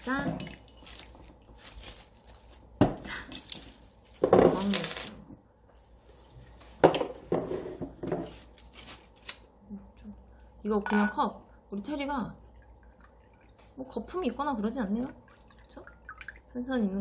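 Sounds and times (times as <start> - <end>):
glass bottles clinking: 0.1 - 1.3, 2.8 - 5.2.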